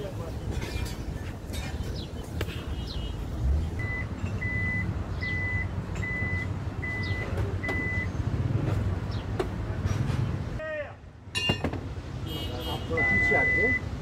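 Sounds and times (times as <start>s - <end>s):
reversing beeper beeps: 3.8s - 8.1s, 13.0s - 13.8s.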